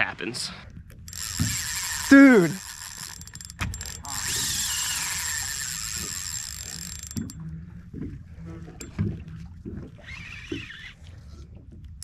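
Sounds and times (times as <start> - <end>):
fishing reel drag buzzing: 1.1 - 7.4.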